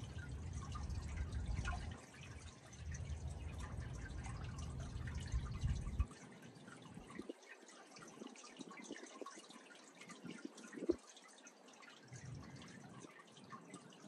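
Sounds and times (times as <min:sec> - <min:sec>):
wind rumbling on microphone: 0:00.0 - 0:06.2, 0:06.8 - 0:11.0
water trickling and splashing: 0:00.0 - 0:14.0.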